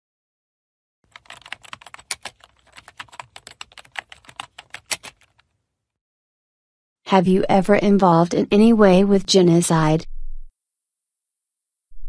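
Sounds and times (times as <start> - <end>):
laptop keyboard typing: 1.1 - 5.5.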